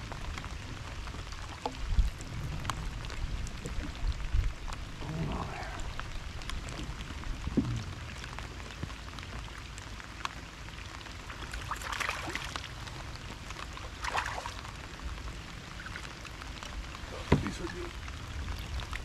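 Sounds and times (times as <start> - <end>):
low rumble: 0.0 - 9.0
rain falling on lake: 0.0 - 19.0
rain pattering on jacket: 0.0 - 19.0.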